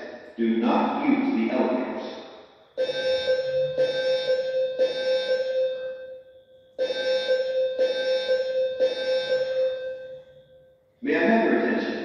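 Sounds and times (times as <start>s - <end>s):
fire alarm tones: 2.7s - 11.0s.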